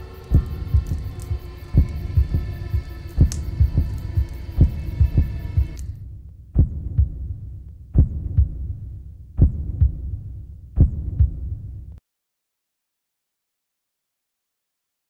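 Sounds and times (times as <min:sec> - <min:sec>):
heartbeat thumps: 0:00.0 - 0:12.0
low hum: 0:00.0 - 0:12.0.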